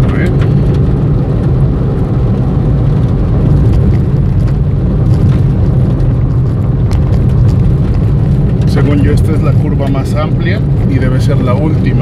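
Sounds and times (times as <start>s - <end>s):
car engine drone inside cabin: 0.0s - 12.0s.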